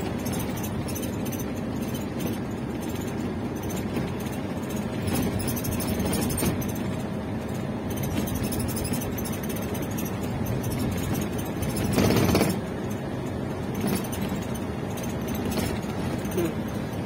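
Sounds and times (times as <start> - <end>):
road noise: 0.0 - 17.0
vehicle engine: 0.0 - 17.0.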